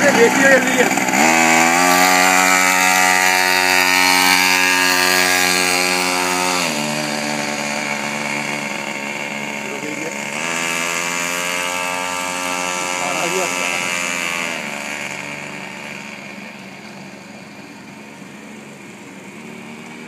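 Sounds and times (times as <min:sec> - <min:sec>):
small bike engine revving: 0:00.0 - 0:20.0.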